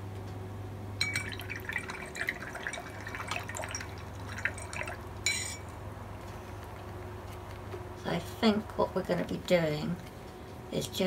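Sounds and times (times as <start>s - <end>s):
ringing glass clink: 1.0s - 2.8s, 4.4s - 5.6s
small water splashes: 1.0s - 5.1s.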